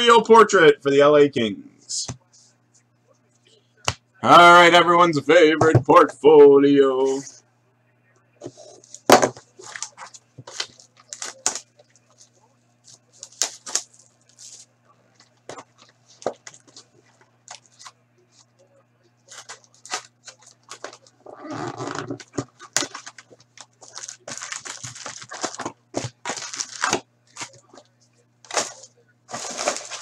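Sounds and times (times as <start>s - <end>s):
low steady hum: 0.0s - 30.0s
foil wrapper crinkling and tearing: 9.6s - 12.3s, 12.9s - 14.6s, 19.3s - 27.7s, 28.4s - 30.0s.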